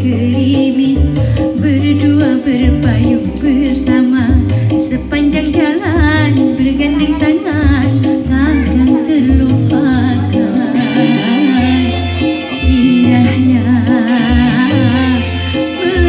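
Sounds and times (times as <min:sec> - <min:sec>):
backing track with bass beat: 0:00.0 - 0:16.0
woman singing into a microphone: 0:00.0 - 0:16.0.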